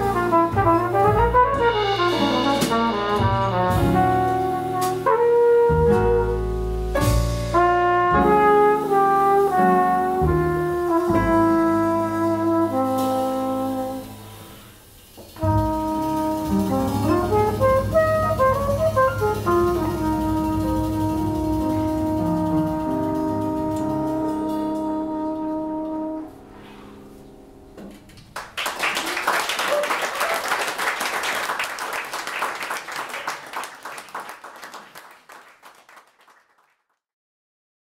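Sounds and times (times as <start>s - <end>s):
flugelhorn: 0.0s - 27.0s
double bass: 0.0s - 27.3s
piano: 0.0s - 36.4s
audience applauding: 28.2s - 37.0s.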